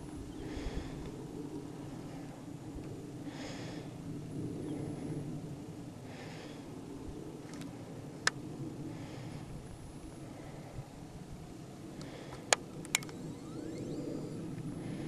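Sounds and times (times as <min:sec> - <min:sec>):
person breathing: 0:00.4 - 0:02.5, 0:03.2 - 0:04.1, 0:06.0 - 0:06.8, 0:08.8 - 0:11.1, 0:11.9 - 0:12.6
sharp click: 0:12.0 - 0:13.8.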